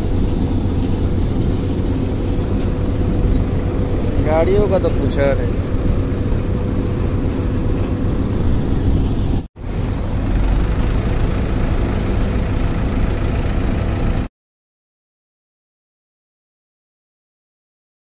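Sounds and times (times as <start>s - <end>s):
diesel truck engine idling: 0.0s - 14.3s.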